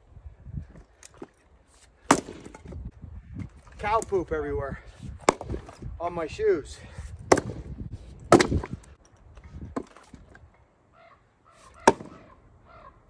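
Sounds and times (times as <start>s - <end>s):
axe chopping firewood: 1.0s - 2.9s, 5.1s - 5.9s, 7.2s - 9.0s, 9.6s - 10.3s, 11.6s - 12.3s.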